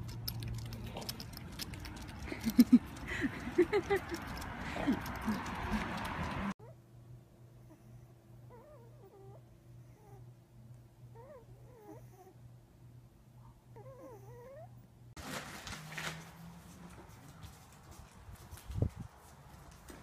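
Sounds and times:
low steady hum: 0:00.0 - 0:15.7
dog paws clicking on paving: 0:16.6 - 0:20.0.

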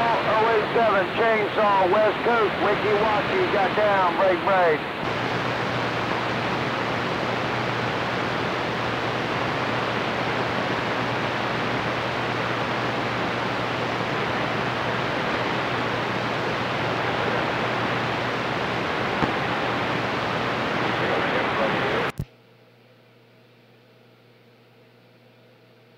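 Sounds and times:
radio static hiss: 0:00.0 - 0:22.3.

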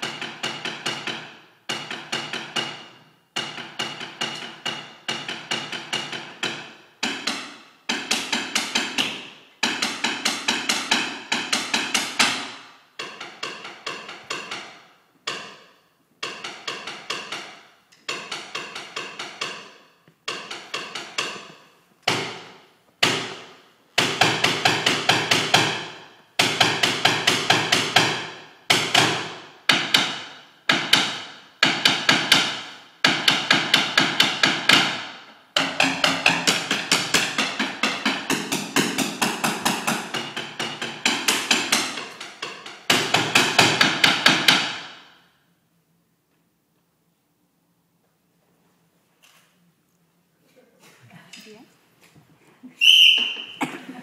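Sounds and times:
drumsticks tapping sculpture: 0:03.4 - 0:25.8, 0:28.8 - 0:45.2.

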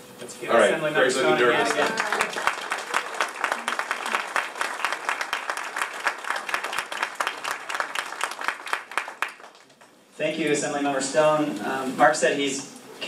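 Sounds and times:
audience applauding: 0:01.4 - 0:09.9.

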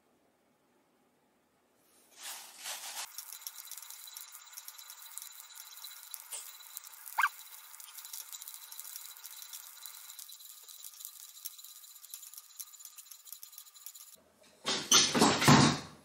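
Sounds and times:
food sizzling in a pan: 0:02.5 - 0:10.7
spatula squeaking on pan: 0:03.0 - 0:14.2.

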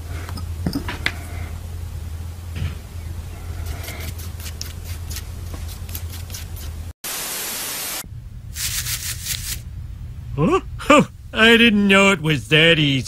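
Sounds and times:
low steady hum: 0:00.0 - 0:06.9, 0:08.0 - 0:13.0
television static hiss: 0:07.1 - 0:08.0.

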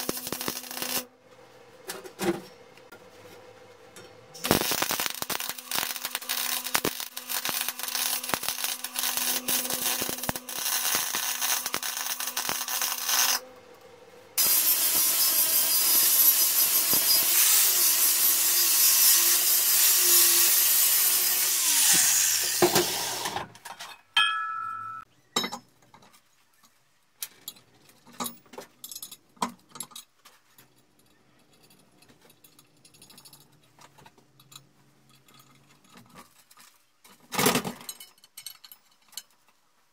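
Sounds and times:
arc welding crackling: 0:00.0 - 0:01.1, 0:04.4 - 0:13.4, 0:14.4 - 0:23.2
angle grinder grinding steel: 0:14.4 - 0:23.3.

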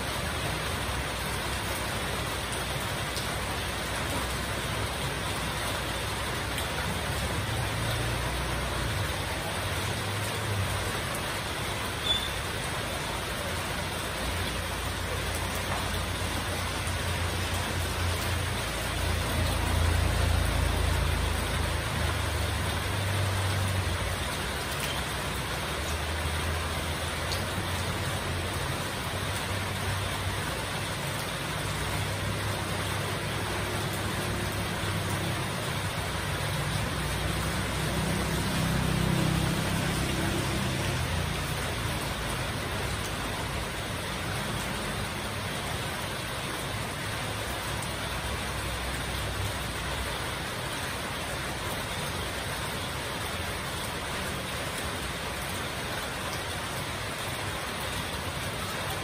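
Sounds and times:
heavy rain on metal roofs: 0:00.0 - 0:59.0
motorbike engines passing: 0:00.1 - 0:55.6.

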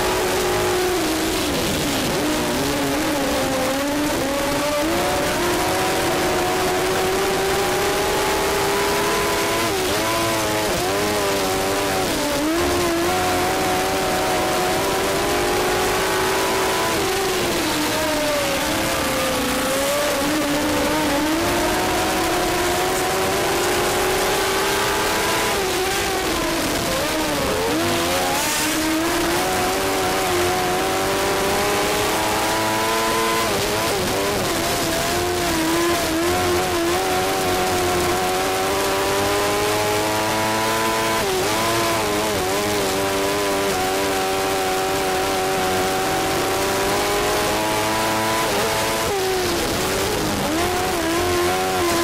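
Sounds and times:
racing car engine: 0:00.0 - 0:52.0.

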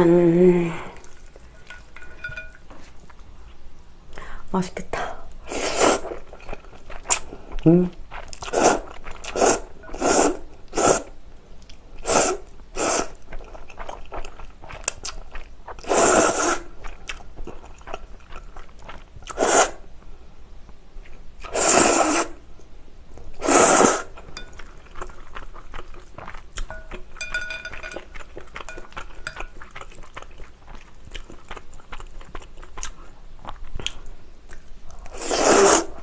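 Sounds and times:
person slurping noodles: 0:05.5 - 0:06.2, 0:08.4 - 0:11.1, 0:12.0 - 0:13.2, 0:15.8 - 0:16.7, 0:19.3 - 0:19.8, 0:21.4 - 0:22.4, 0:23.4 - 0:24.2, 0:35.1 - 0:36.0
chewing: 0:06.1 - 0:10.0, 0:13.0 - 0:15.9, 0:16.5 - 0:19.4, 0:24.1 - 0:35.8.

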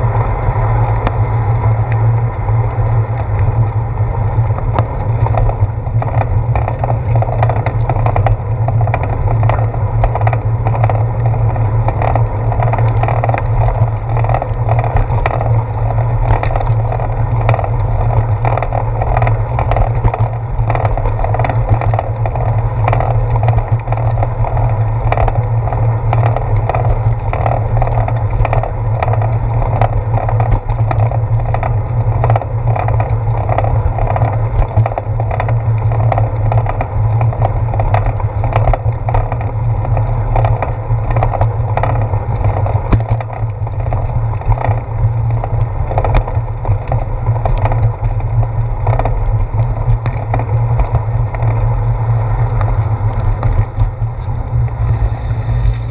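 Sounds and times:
bicycle tyre road hum: 0:00.0 - 0:55.9
small rattling clicks: 0:04.4 - 0:55.9.

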